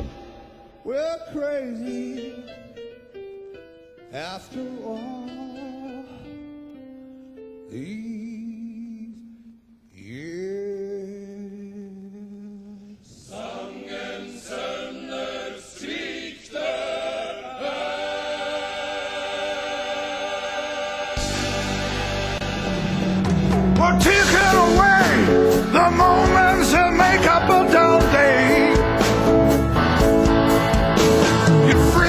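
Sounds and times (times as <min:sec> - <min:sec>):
male choir singing: 0:13.2 - 0:23.0, 0:23.8 - 0:32.0
man singing long notes: 0:23.8 - 0:28.9, 0:31.5 - 0:32.0.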